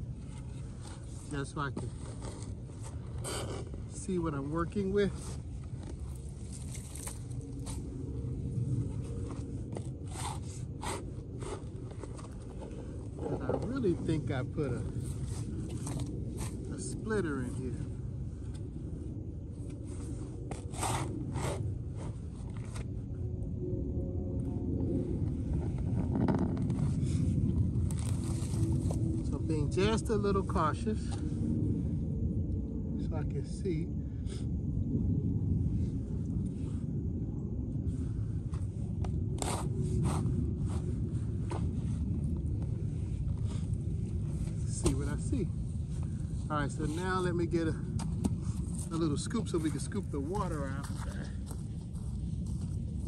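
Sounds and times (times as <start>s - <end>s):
steady low rumble: 0.0s - 53.0s
shovel scraping soil: 20.5s - 21.6s, 39.4s - 40.3s.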